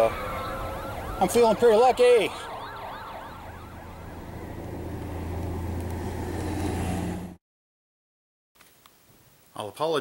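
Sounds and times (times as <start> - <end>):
siren wailing: 0.0 - 5.8
car engine humming: 2.4 - 7.4.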